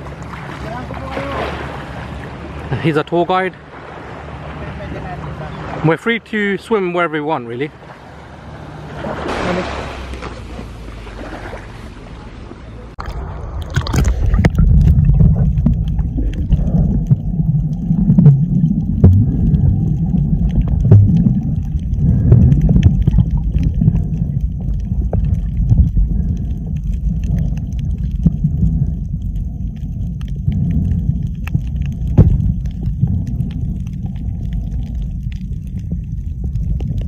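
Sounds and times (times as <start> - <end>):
small waves lapping: 0.0 - 29.6
muffled underwater rumble: 8.8 - 37.0
underwater bubbling: 12.9 - 37.0.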